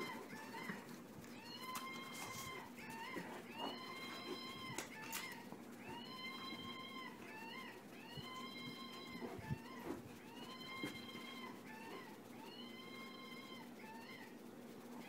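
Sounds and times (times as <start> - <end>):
toy electronic calls: 0.0 - 14.4.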